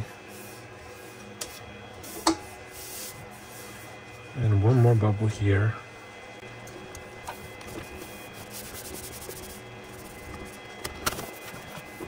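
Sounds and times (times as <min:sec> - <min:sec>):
hands rubbing adhesive sheet: 0:07.6 - 0:12.0.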